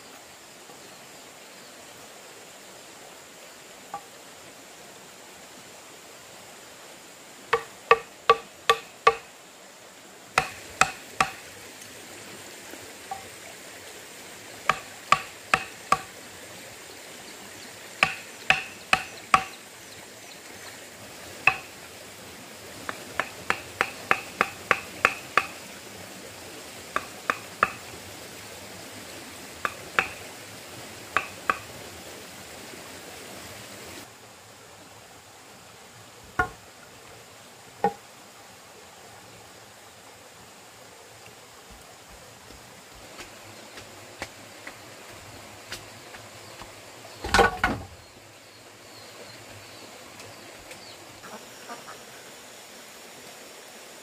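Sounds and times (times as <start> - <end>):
sharp ringing knocks: 7.6 - 9.3, 10.4 - 11.4, 14.7 - 16.1, 18.0 - 19.6, 21.5 - 21.7, 23.2 - 25.5, 27.0 - 27.8, 29.7 - 30.2, 31.2 - 31.6.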